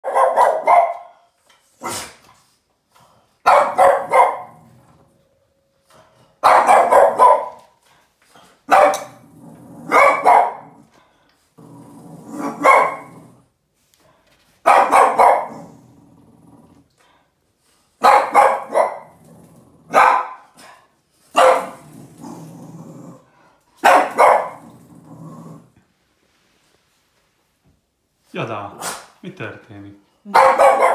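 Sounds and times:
dog barking angrily: 0.0s - 1.2s, 3.4s - 4.7s, 6.4s - 7.7s, 8.7s - 10.9s, 12.2s - 13.4s, 14.6s - 15.8s, 18.0s - 19.2s, 19.8s - 21.9s, 23.8s - 24.8s, 30.3s - 30.9s
dog growling: 9.1s - 13.5s, 15.4s - 17.1s, 19.0s - 20.0s, 21.5s - 23.5s, 24.4s - 25.8s.

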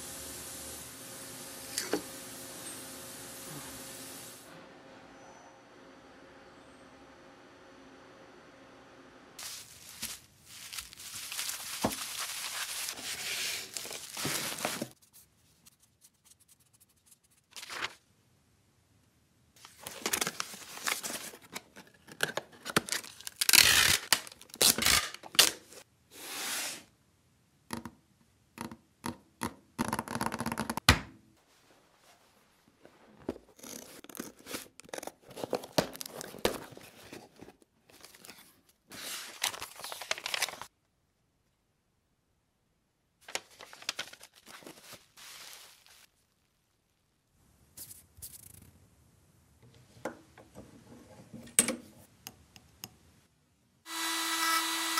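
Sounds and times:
cardboard and paper rustling: 9.4s - 15.0s, 17.5s - 18.0s, 19.6s - 25.8s, 32.8s - 40.7s, 43.2s - 46.2s.

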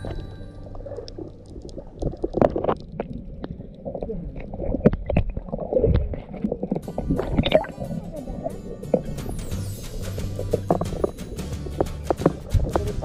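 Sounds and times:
water sloshing and gurgling: 0.0s - 13.0s
knocks and clicks: 10.4s - 13.0s.

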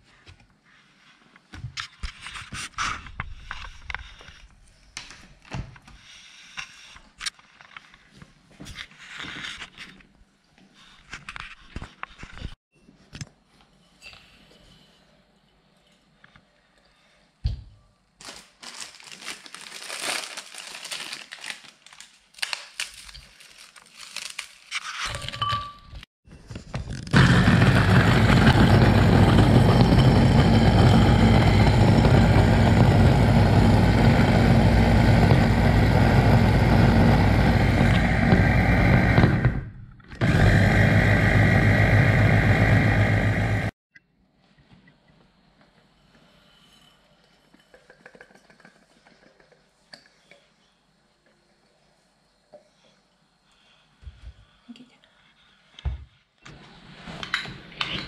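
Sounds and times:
biscuits crinkling and cracking: 18.2s - 25.0s
electric chopper grinding: 27.1s - 43.7s.

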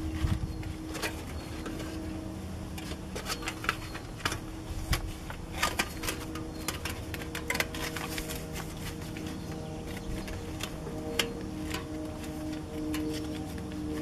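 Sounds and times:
foil crinkling and rustling: 0.0s - 14.0s.

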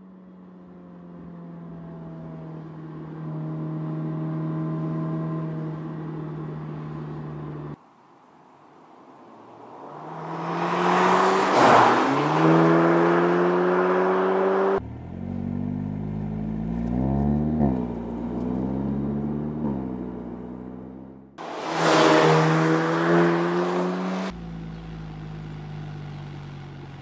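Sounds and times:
car passing by at speed: 9.3s - 14.8s, 21.4s - 24.3s
car engine running: 12.5s - 27.0s.

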